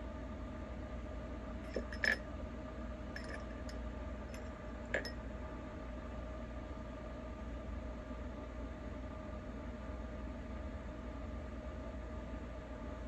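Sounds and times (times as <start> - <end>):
low background hum: 0.0 - 13.0
makeup items clicking and clinking: 1.7 - 2.2.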